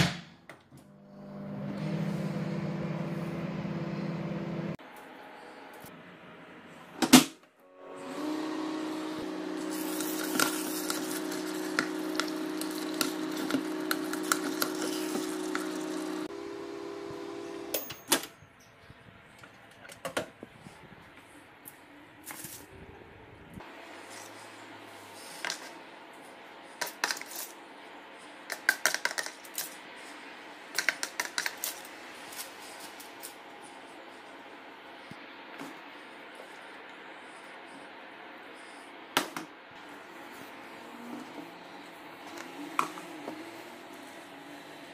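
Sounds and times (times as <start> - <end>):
microwave humming: 0.0 - 18.4.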